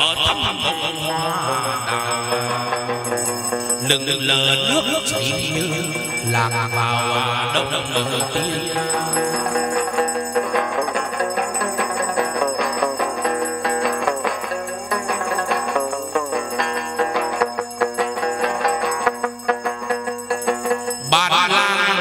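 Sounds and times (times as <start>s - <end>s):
plucked string melody: 0.0s - 22.0s.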